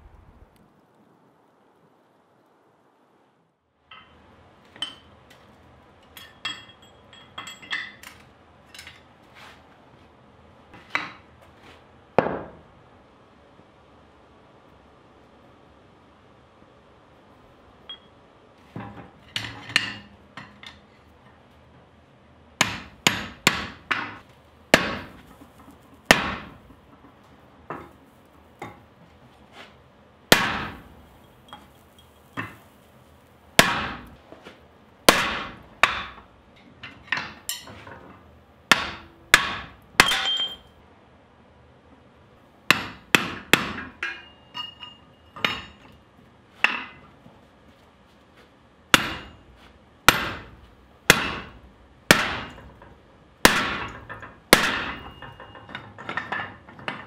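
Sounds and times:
hammer striking punch on steel: 22.6 - 25.2, 26.1 - 26.6, 30.3 - 30.9, 33.6 - 34.2, 35.1 - 36.2, 38.7 - 40.7, 42.7 - 44.4, 48.9 - 49.4, 50.1 - 52.8, 53.4 - 55.6.

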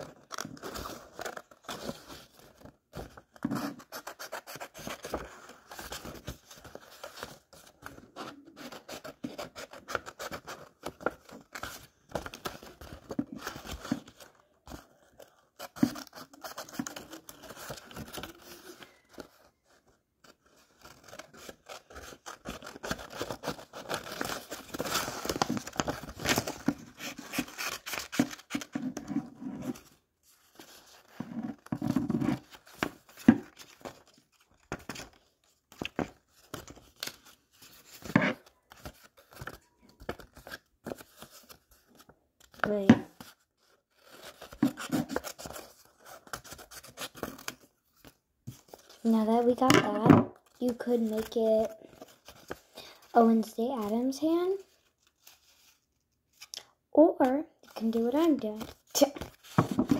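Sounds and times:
paper rustling: 0.0 - 49.7, 50.4 - 54.0.

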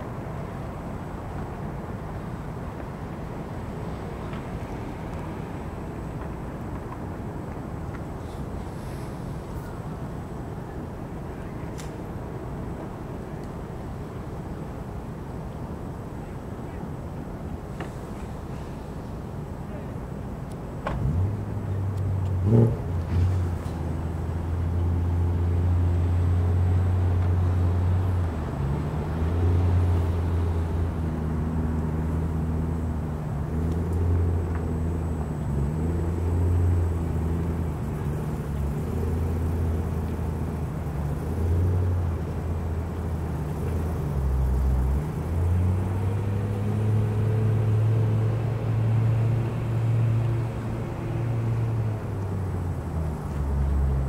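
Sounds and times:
large engine droning: 21.0 - 54.0.

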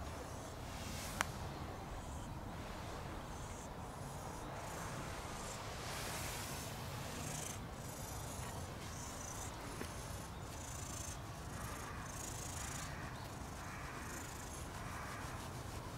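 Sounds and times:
low outdoor background noise: 0.0 - 15.9
hand stroking cat fur: 0.6 - 3.6, 4.2 - 15.9.

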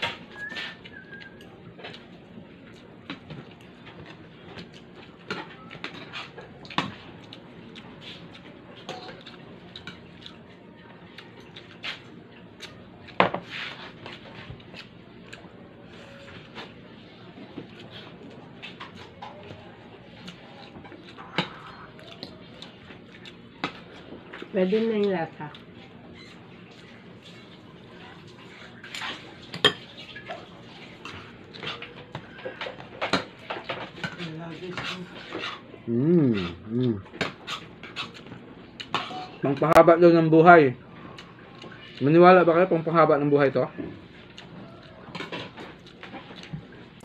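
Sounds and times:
utensils clinking on plates: 28.4 - 35.6.

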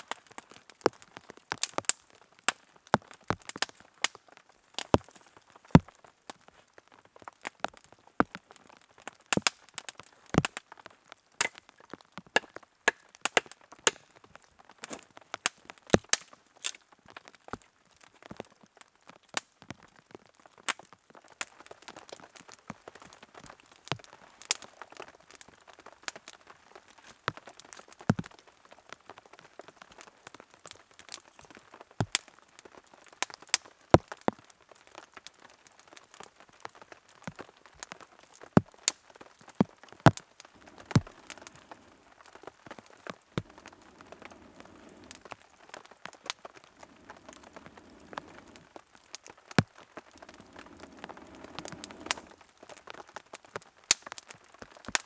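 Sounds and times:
campfire crackling and popping: 0.0 - 55.0
faint fire hiss: 21.4 - 55.0.

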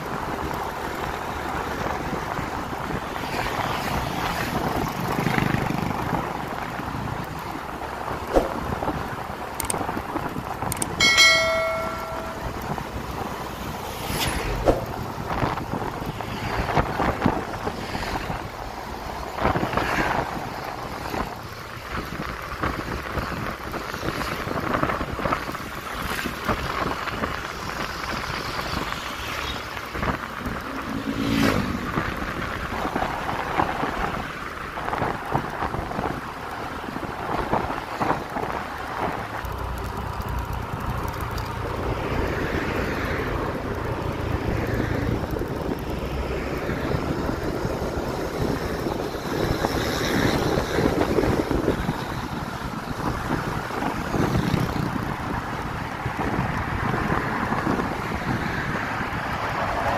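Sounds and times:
motorbikes passing: 0.0 - 59.9
road traffic passing: 0.0 - 59.9
wind buffeting microphone: 29.8 - 59.9.

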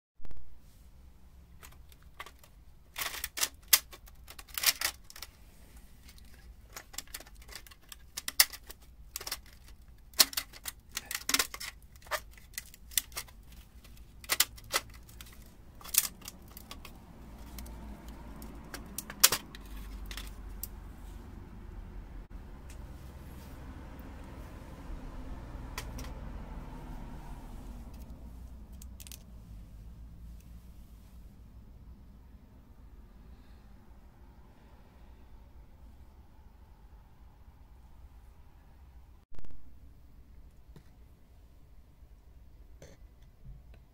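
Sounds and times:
metallic clicks and clinks: 6.1 - 20.7, 28.7 - 29.3.

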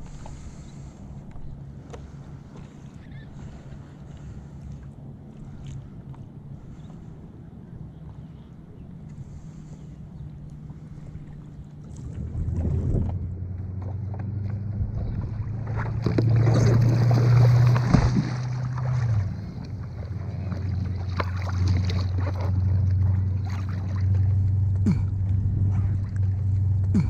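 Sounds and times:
steady low hum: 0.0 - 27.0
water splashing against paddleboard: 11.2 - 27.0.

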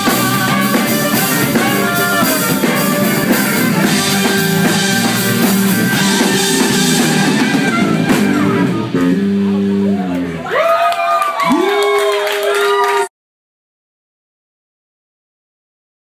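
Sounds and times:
trumpet: 0.0 - 9.2
drum kit: 0.0 - 10.4
electric guitar: 0.0 - 10.6
bass guitar: 0.0 - 10.8.

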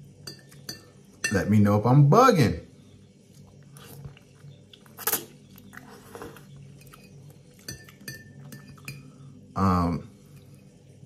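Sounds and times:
utensil clinking against bowl: 0.2 - 1.5, 6.7 - 9.2
quiet chewing: 3.2 - 9.1.

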